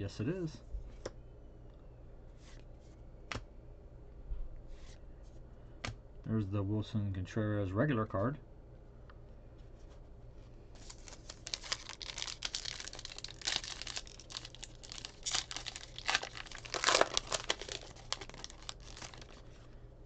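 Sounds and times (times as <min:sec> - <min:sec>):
wrapper tearing and crinkling: 0:10.8 - 0:19.6.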